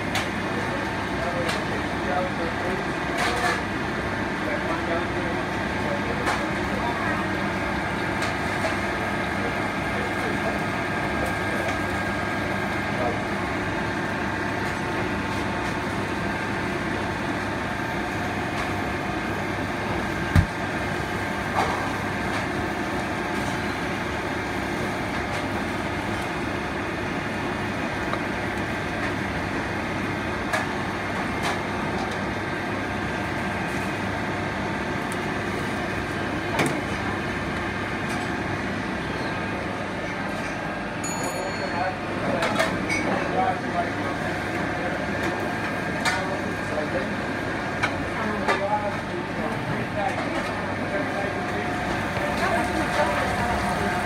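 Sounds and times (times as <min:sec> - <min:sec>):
oven fan noise: 0:00.0 - 0:54.0.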